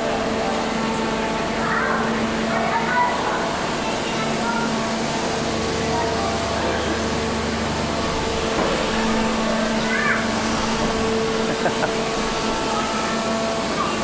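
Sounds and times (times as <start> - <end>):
machine hum with steady tones: 0.0 - 14.0
low drone: 3.2 - 14.0.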